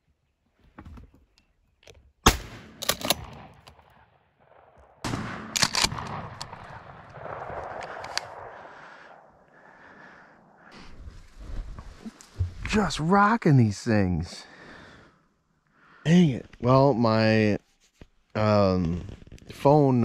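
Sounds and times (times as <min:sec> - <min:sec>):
shotgun shots: 0:02.2 - 0:04.0, 0:05.0 - 0:08.5.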